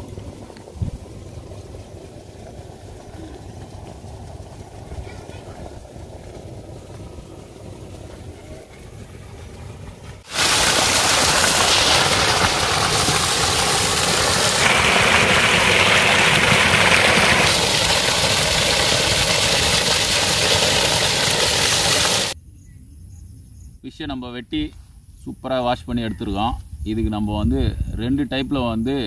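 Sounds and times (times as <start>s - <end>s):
water pouring and splashing: 0.0s - 22.4s.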